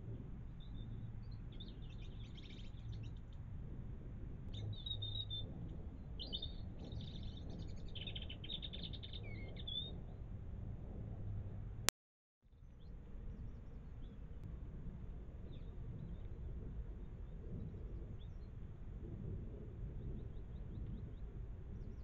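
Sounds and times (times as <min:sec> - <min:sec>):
songbirds chirping: 0:00.0 - 0:03.8, 0:04.4 - 0:10.3
low steady hum: 0:00.0 - 0:11.9, 0:12.5 - 0:22.0.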